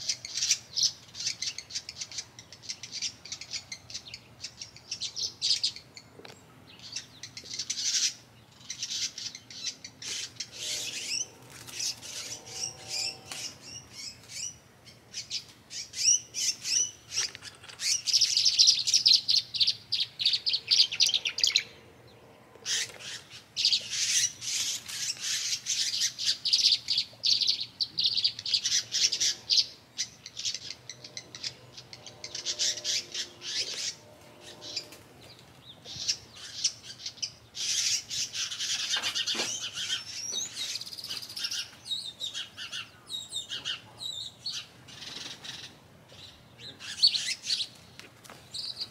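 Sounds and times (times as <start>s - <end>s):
small birds chirping: 0.0s - 48.9s.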